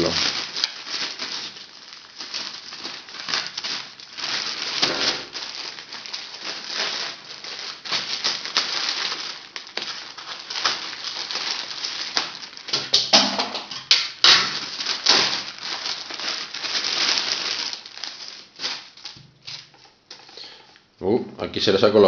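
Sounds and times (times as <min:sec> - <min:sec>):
plastic bag crinkling: 0:00.0 - 0:20.9.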